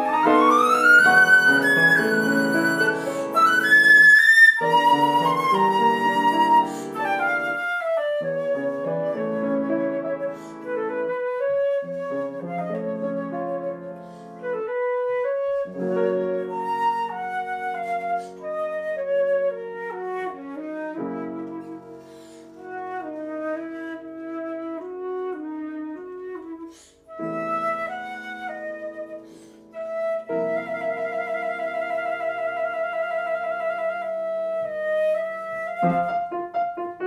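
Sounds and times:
flute melody: 0.0s - 37.0s
piano chords: 0.0s - 37.0s.

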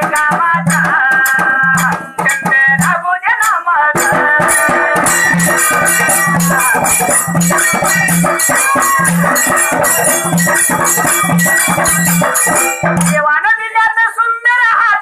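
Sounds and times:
dhol drums fast rhythm: 0.0s - 14.3s
bright metallic jingling: 4.0s - 13.2s.

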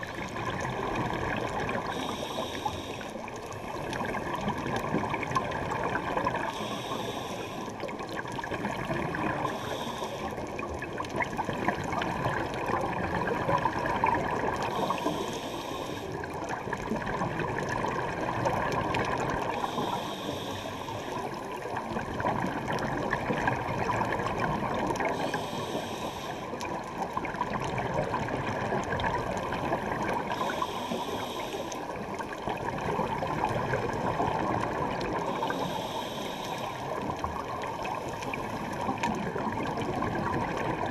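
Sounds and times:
regulator bubbles underwater: 0.0s - 40.9s
regulator breath hiss: 1.9s - 3.3s, 6.5s - 7.8s, 9.4s - 10.4s, 14.7s - 16.2s, 19.6s - 21.4s, 25.1s - 26.6s, 30.3s - 31.9s, 35.3s - 37.0s.

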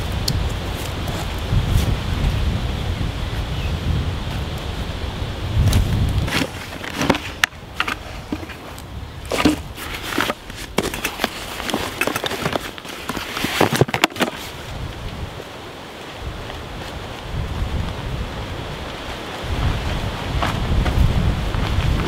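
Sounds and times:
wind on microphone: 0.0s - 22.0s
rustling of bags and straps: 5.6s - 15.2s.

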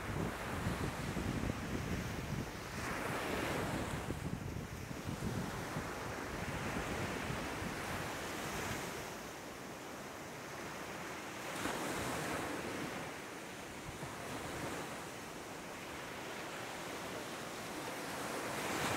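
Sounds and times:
wind on microphone: 0.0s - 9.2s
waves washing up a beach: 0.0s - 18.9s.

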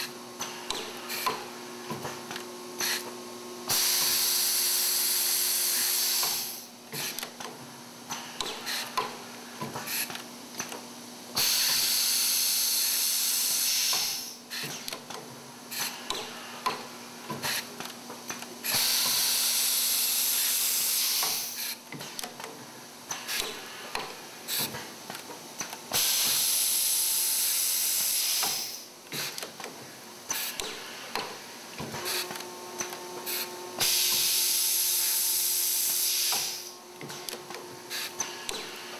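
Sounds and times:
machine clicks and knocks: 13.9s - 19.2s, 21.2s - 26.4s, 28.4s - 34.3s, 36.3s - 38.8s
riveter air hiss: 25.9s - 29.4s, 33.3s - 36.8s.

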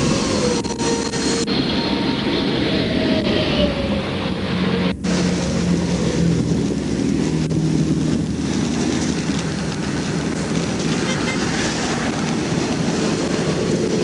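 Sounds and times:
traffic passing hiss: 4.6s - 14.0s.

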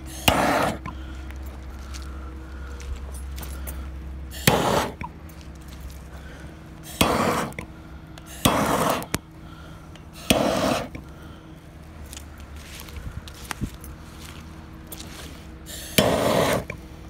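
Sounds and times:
footsteps crunching on gravel: 0.0s - 6.5s, 10.3s - 16.4s
faint steady hum: 0.0s - 17.0s.

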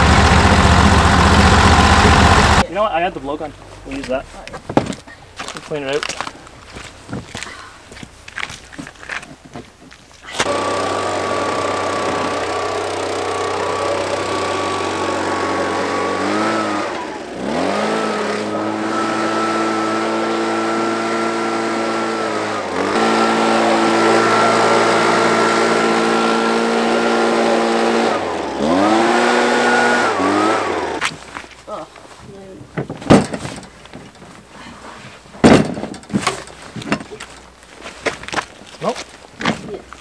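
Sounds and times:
gas blower running: 0.0s - 2.7s, 10.4s - 31.2s.

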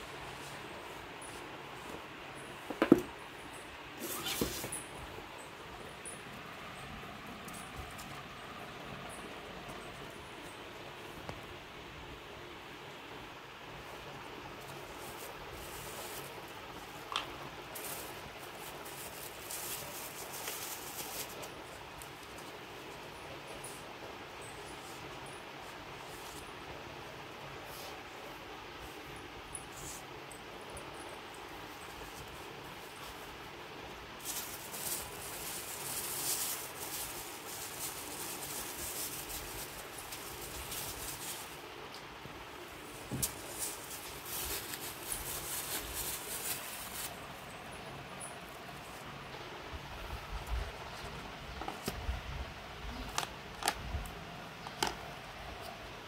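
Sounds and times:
steady hiss: 0.0s - 56.0s
cardboard packaging rustling: 4.0s - 4.9s, 17.7s - 22.3s, 34.2s - 41.6s, 43.0s - 47.3s
plastic wrapping crinkling: 34.2s - 41.6s, 43.1s - 47.2s.

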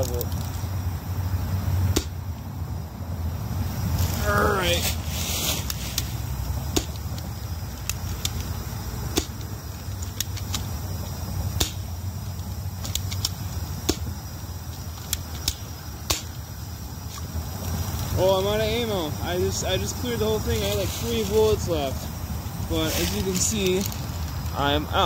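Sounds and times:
airsoft gun shots: 11.6s - 11.9s.

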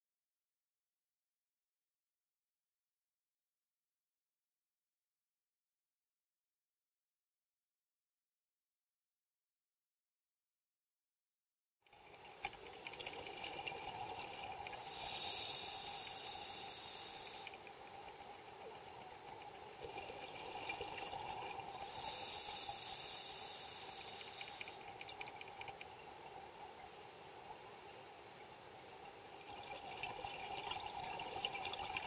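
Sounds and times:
steady underwater hum: 11.9s - 32.0s
scuba regulator breathing: 14.6s - 17.7s, 21.5s - 24.9s.

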